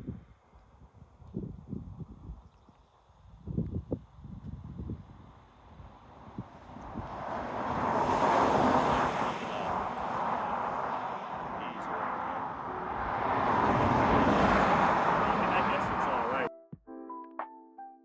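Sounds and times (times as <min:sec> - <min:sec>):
wind rush over microphone: 0:00.0 - 0:11.5.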